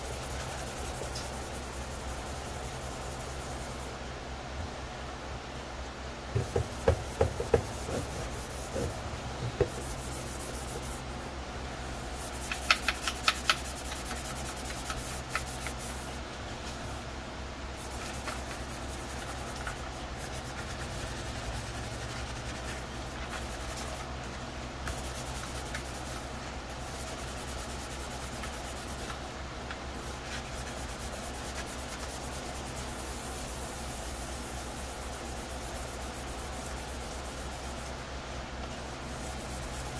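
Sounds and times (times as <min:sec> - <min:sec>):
scratchy sanding of plastic: 0:17.8 - 0:24.1.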